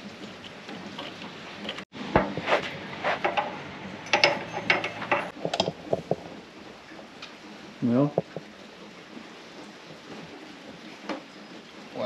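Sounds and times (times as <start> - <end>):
metal tool clicks and clatter: 3.3 - 5.8.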